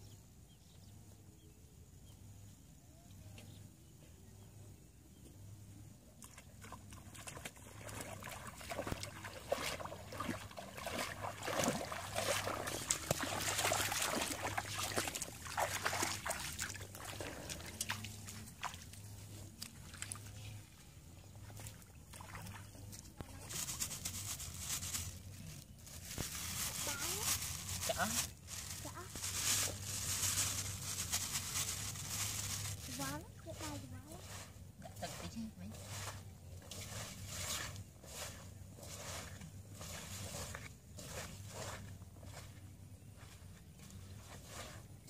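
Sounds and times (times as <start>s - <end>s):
footsteps splashing through water: 6.2s - 20.5s, 21.4s - 23.0s
crackling rustles: 22.8s - 34.4s.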